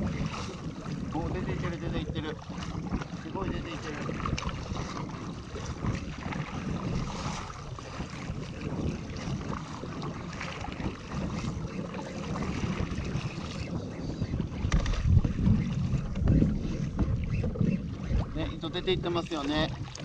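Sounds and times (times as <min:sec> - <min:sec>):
paddle splashing in water: 0:00.0 - 0:20.0
water sloshing against hull: 0:00.0 - 0:20.0
wind buffeting microphone: 0:00.0 - 0:20.0.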